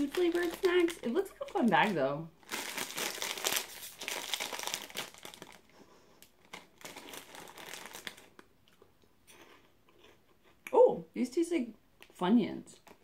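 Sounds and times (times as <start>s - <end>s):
plastic bag crinkling: 0.0s - 8.5s.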